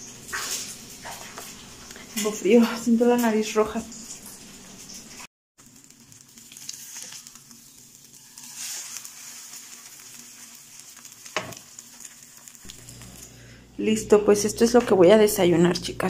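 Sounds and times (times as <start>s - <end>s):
eggs sizzling in a frying pan: 0.0s - 15.0s
spatula scraping a pan: 5.8s - 12.6s.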